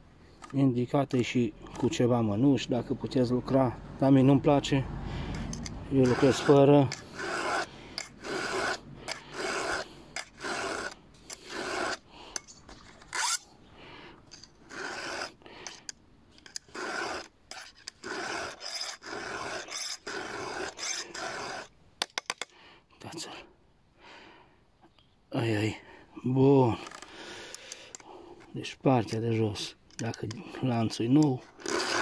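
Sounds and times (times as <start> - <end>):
file rasping on saw chain: 5.3 - 12.5, 13.1 - 13.5, 14.3 - 21.7, 31.2 - 32.0.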